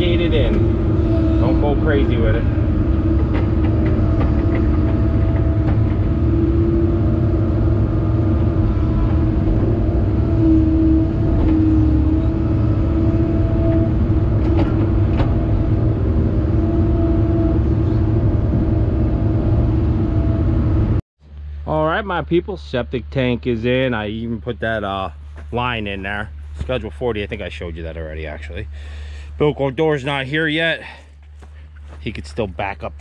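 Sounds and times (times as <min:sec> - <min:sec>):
excavator diesel engine running: 0:00.0 - 0:21.0
hydraulic whine: 0:00.0 - 0:21.0.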